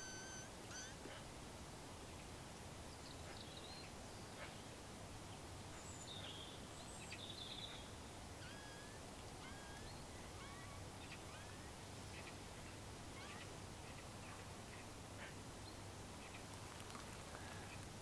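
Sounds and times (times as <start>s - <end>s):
lip squeaks imitating a mouse: 0.0s - 1.0s, 8.4s - 11.6s, 13.2s - 13.5s
outdoor hiss: 0.0s - 18.0s.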